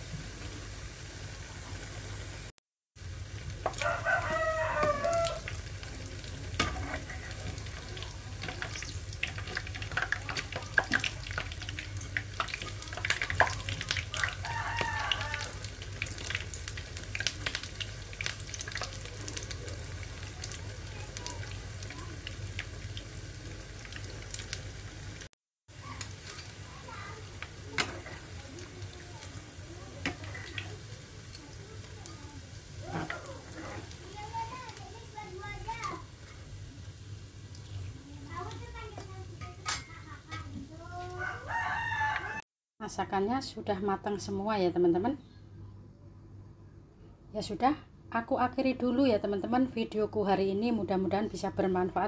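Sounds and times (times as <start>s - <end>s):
food deep-frying in oil: 0.0s - 42.4s
rooster crowing: 3.7s - 5.5s, 14.1s - 15.7s, 41.1s - 42.4s.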